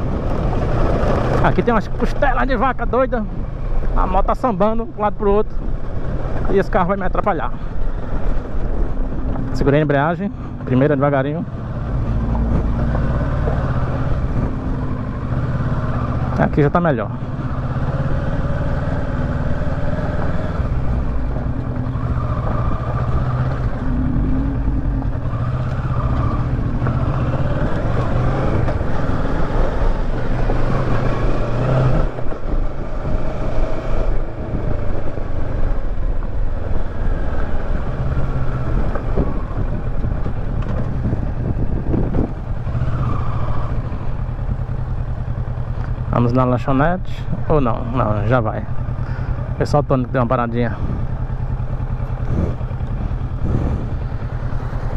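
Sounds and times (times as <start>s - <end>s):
motorcycle engine revving: 0.0s - 6.6s, 7.2s - 54.9s.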